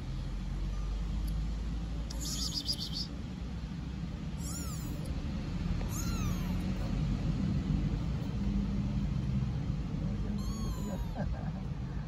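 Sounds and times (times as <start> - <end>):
kitten meowing: 2.1 - 3.1, 4.4 - 5.1, 5.8 - 6.8, 10.3 - 11.3.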